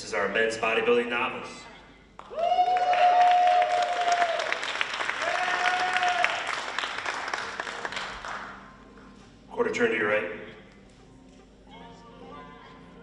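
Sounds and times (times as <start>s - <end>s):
crowd cheering: 2.2s - 8.2s
audience applauding: 2.2s - 8.6s.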